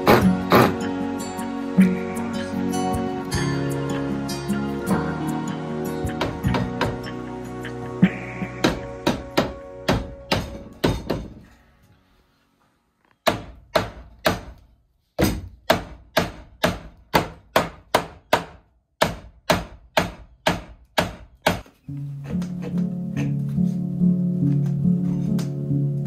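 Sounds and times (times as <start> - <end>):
faint background music: 0.0 - 13.5
hammer striking wood: 6.1 - 7.1, 8.6 - 11.5, 13.2 - 14.6, 15.2 - 21.7.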